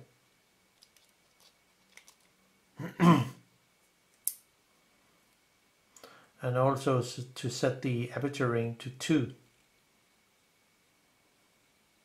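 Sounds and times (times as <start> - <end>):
short vocal utterance: 2.8 - 3.4.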